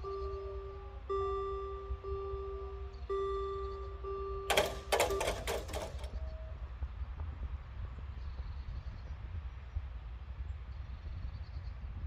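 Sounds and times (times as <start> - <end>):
level crossing electronic gong: 0.0 - 6.1.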